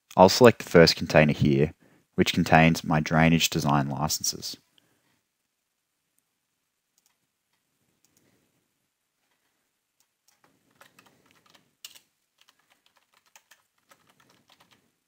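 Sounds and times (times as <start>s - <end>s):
faint keyboard typing: 6.9s - 8.4s, 9.2s - 15.0s.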